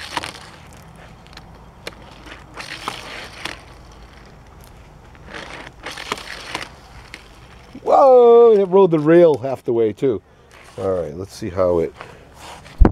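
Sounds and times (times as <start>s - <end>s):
toy car rolling on plastic track: 2.1s - 7.8s.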